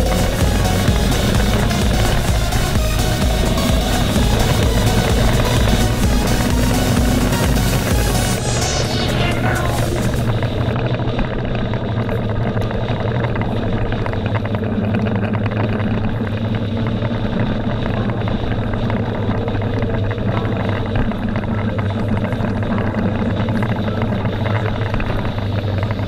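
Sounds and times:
motorcycle engine cruising: 0.0s - 26.0s.

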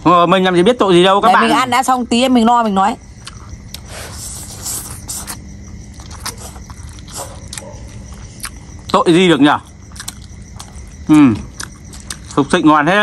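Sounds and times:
slurping and chewing noodles: 3.2s - 9.0s, 9.6s - 12.5s.

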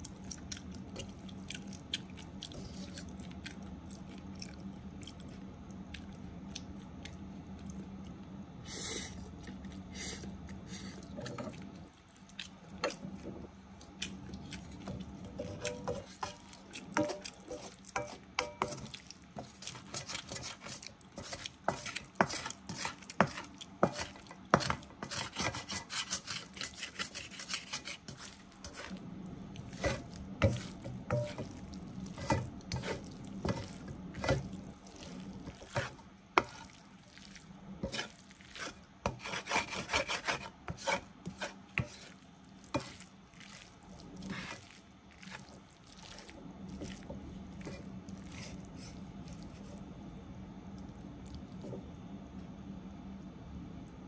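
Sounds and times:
wooden spatula scraping a frying pan: 14.9s - 28.9s, 29.7s - 31.5s, 32.1s - 36.7s, 37.8s - 43.0s, 46.8s - 49.0s.

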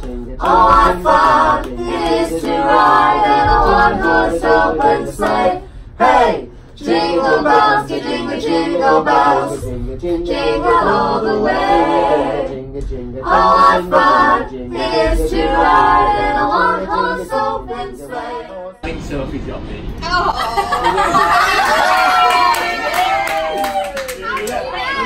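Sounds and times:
voices singing a cappella: 0.0s - 18.8s.

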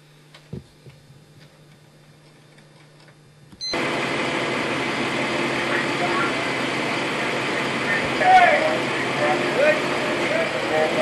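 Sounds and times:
low hum: 0.0s - 11.0s
truck engine running: 3.7s - 11.0s.

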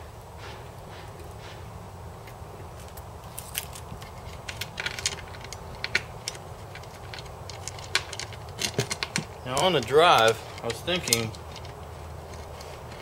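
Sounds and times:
low background hum: 0.0s - 13.0s
metal parts clinking: 3.4s - 13.0s.

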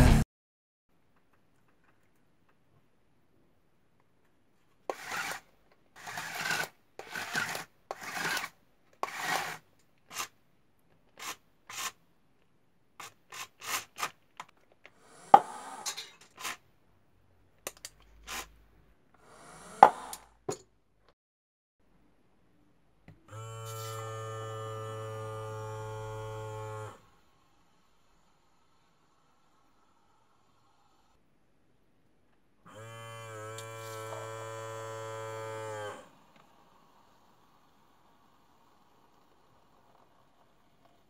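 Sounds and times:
cardboard parts scraping: 13.0s - 14.5s
electric pump motor humming: 23.3s - 27.1s, 32.7s - 36.0s.

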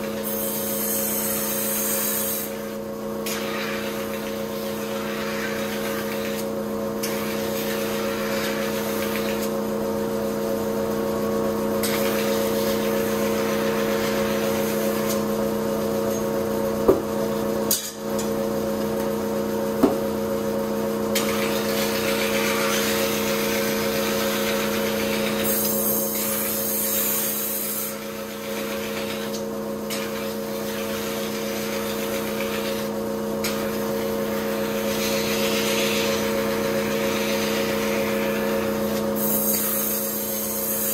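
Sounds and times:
machine hum: 2.6s - 26.9s.

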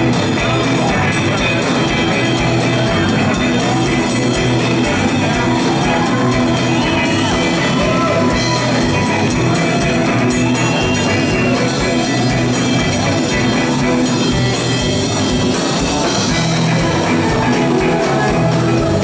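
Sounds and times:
bass guitar: 0.0s - 19.0s
drum kit: 0.0s - 19.0s
electric guitars: 0.0s - 19.0s.

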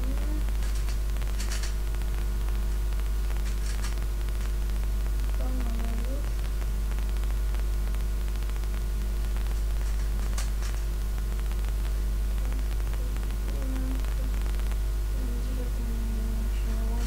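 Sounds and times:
electrical mains hum and hiss: 0.0s - 17.0s
puzzle cube clicking: 0.6s - 1.8s.

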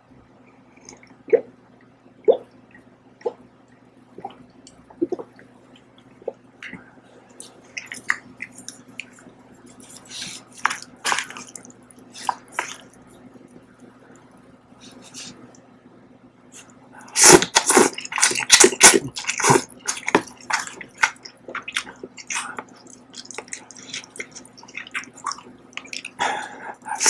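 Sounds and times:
person gulping milk: 4.2s - 13.6s, 17.1s - 27.0s.

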